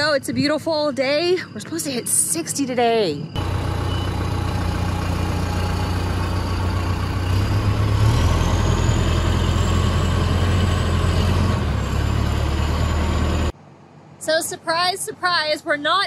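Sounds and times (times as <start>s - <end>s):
diesel engine running: 3.4s - 13.6s.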